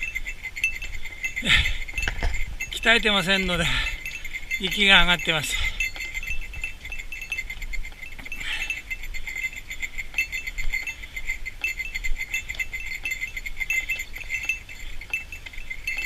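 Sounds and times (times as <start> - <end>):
light metallic jingling: 0.0 - 16.0.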